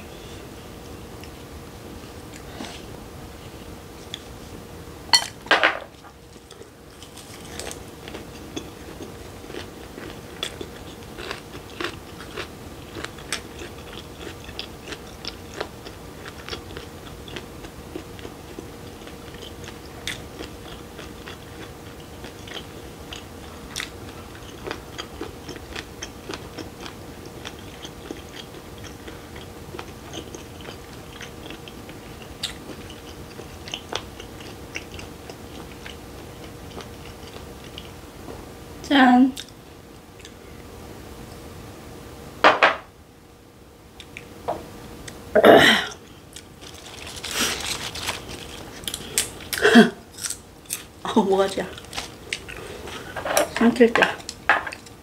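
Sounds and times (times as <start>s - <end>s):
crisp chewing: 5.9s - 38.0s, 45.9s - 51.0s, 51.7s - 53.5s.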